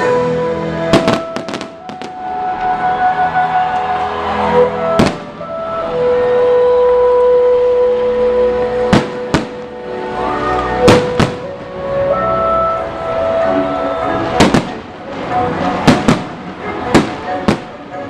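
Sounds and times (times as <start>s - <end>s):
music with long held notes: 0.0s - 18.0s
fireworks bangs: 0.9s - 2.7s, 4.9s - 5.5s, 8.8s - 9.8s, 10.7s - 11.7s, 14.2s - 18.0s.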